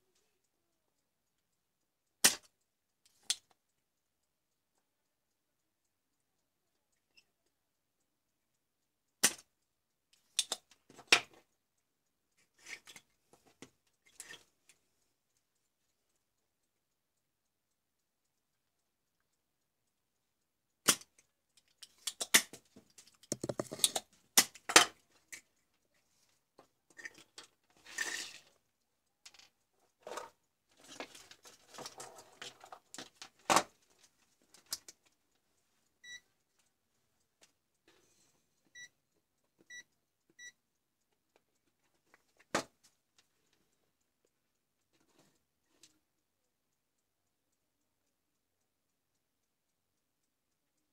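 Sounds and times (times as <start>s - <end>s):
multimeter beeps: 36.0s - 36.2s, 39.7s - 40.6s.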